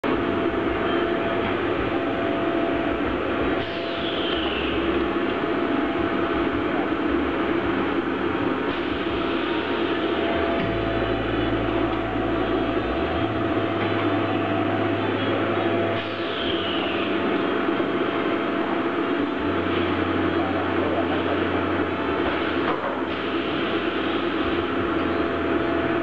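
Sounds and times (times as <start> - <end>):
deep machine hum: 0.0 - 26.0
thin constant whine: 0.0 - 26.0
welding machine mechanical noise: 0.0 - 26.0.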